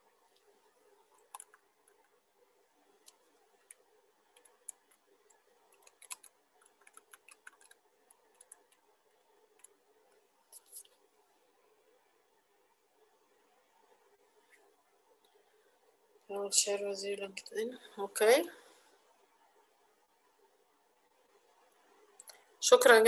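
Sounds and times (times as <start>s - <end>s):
low room hum: 0.0s - 23.0s
keyboard and mouse clicks: 1.1s - 2.2s, 3.0s - 8.8s, 9.5s - 9.8s.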